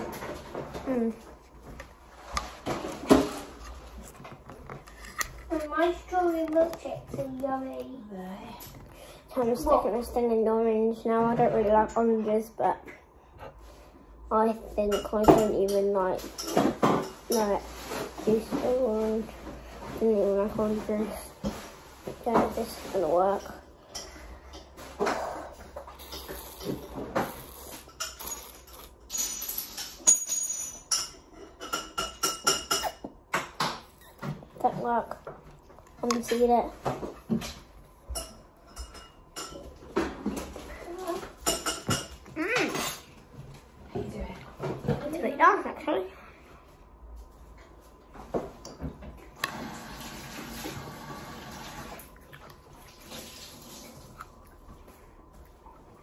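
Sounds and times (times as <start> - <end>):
wet clicks and slurps: 51.9 - 54.9.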